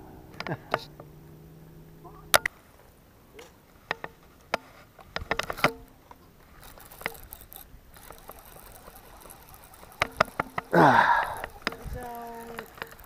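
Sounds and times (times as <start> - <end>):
clicks and scrapes: 3.4 - 13.0.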